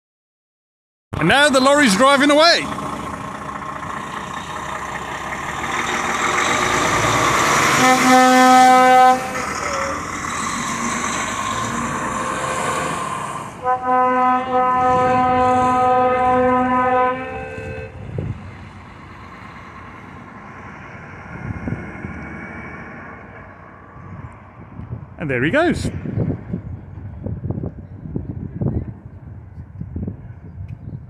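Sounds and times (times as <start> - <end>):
diesel lorry engine: 1.2 - 31.0
lorry air horn blasts: 7.7 - 9.4, 13.6 - 18.1.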